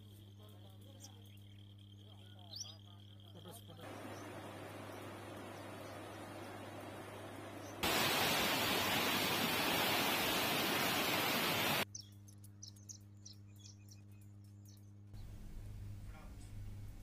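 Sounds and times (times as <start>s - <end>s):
low steady hum: 0.0s - 17.0s
fast-flowing floodwater rushing: 3.9s - 11.8s.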